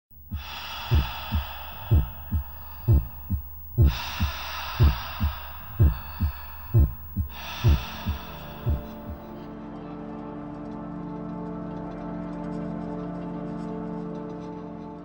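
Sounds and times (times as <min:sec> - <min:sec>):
heartbeat double thump: 0:00.2 - 0:09.3.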